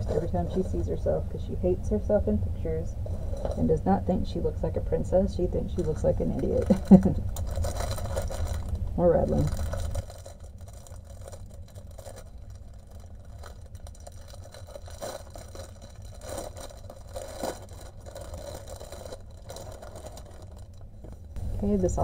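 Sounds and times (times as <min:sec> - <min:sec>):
steady low hum: 0:00.0 - 0:22.0
bagged beads rattling: 0:03.1 - 0:03.7, 0:05.7 - 0:21.4
plastic packaging crinkling: 0:05.7 - 0:21.4.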